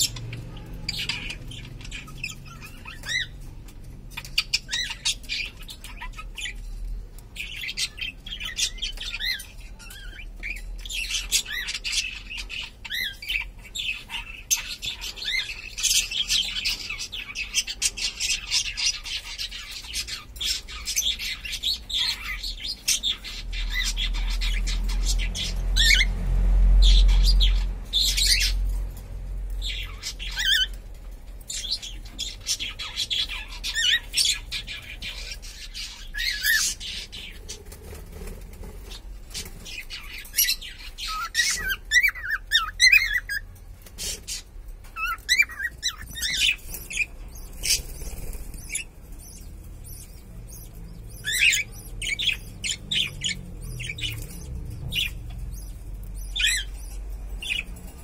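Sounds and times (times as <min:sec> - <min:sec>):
cockatiels chirping and squawking: 0:00.0 - 0:58.0
low rumble: 0:47.2 - 0:58.0.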